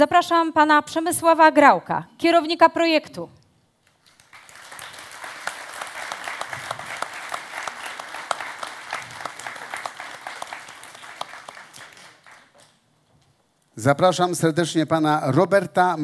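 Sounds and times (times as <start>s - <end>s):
audience applauding: 4.0s - 12.8s.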